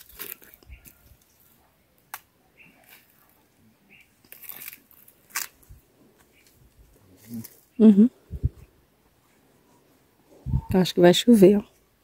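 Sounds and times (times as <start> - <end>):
fruit stalk snapping: 2.1 - 3.1.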